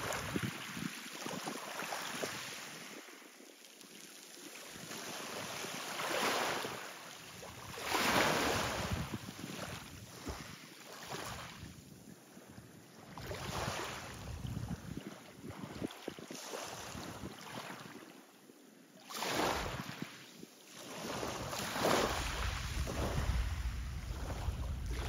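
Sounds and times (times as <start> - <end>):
wind on microphone: 0.0 - 1.5, 7.4 - 10.6, 13.1 - 17.6, 21.0 - 25.0
waves lapping: 0.0 - 18.3, 19.0 - 25.0.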